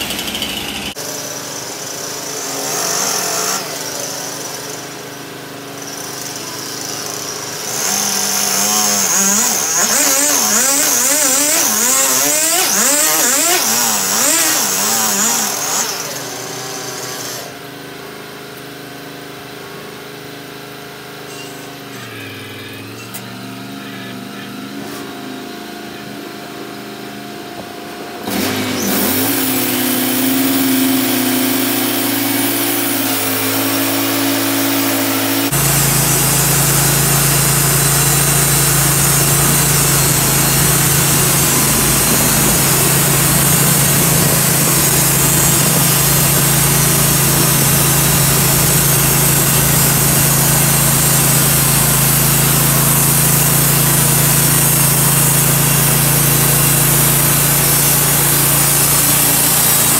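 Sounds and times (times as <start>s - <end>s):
gasoline engine idling and revving: 0.0s - 59.9s
bandsaw blade hissing: 7.8s - 17.5s, 28.3s - 59.9s.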